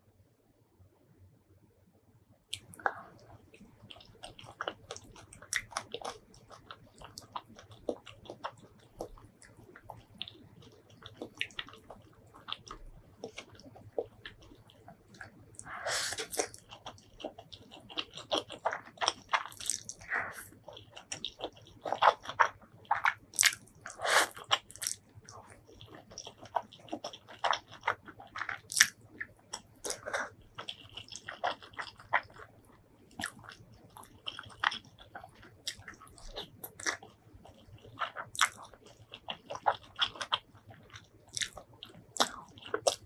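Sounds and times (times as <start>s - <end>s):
chewing with wet mouth clicks: 2.5s - 43.0s
noodles slurped: 21.9s - 25.0s.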